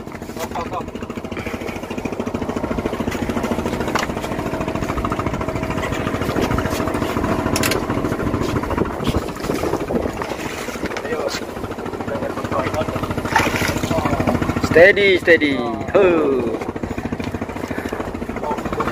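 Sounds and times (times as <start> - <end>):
boat engine throbbing: 0.0 - 18.9.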